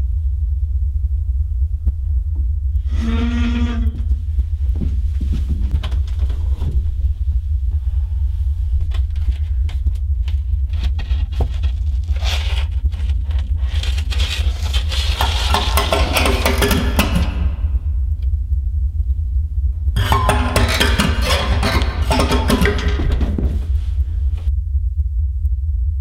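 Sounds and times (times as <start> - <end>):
low droning rumble: 0.0 - 26.0
attic hatch panel scraping: 2.8 - 6.9, 10.7 - 17.8, 20.0 - 24.5.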